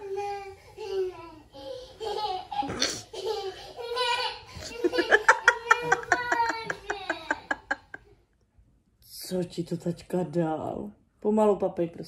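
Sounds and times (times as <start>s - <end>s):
small child giggling: 1.8s - 8.0s.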